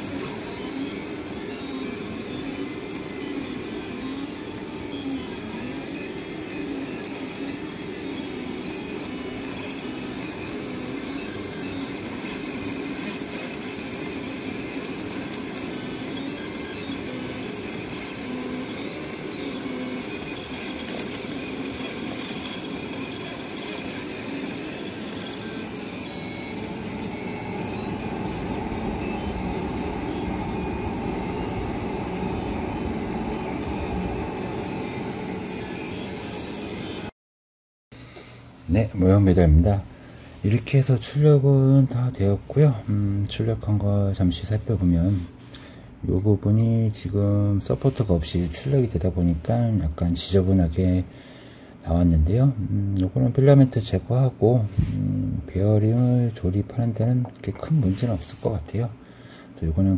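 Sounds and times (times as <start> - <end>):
printer fans humming: 0.0 - 37.1
stepper motors whining: 0.0 - 37.1
high whine: 0.0 - 37.2.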